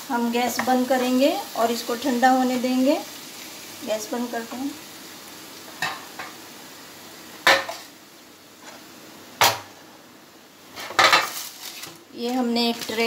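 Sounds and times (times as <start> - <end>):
metal pan clanking on burner grate: 10.8 - 11.4.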